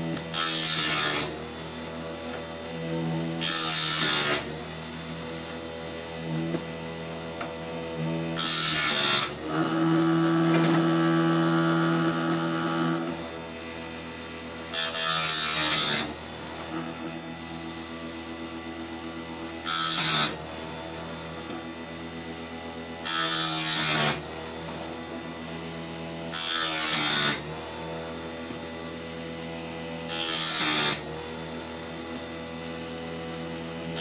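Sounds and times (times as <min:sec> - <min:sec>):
grinding wheel hiss: 0:00.0 - 0:02.0, 0:03.4 - 0:04.5, 0:07.3 - 0:13.7, 0:14.7 - 0:17.1, 0:19.4 - 0:20.4, 0:23.0 - 0:24.2, 0:26.3 - 0:27.5, 0:30.1 - 0:31.1
sharpener motor hum: 0:00.0 - 0:32.9.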